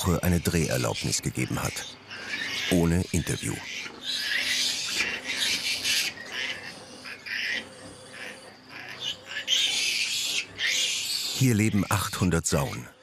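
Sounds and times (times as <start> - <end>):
piglets squealing: 0.0 - 13.0.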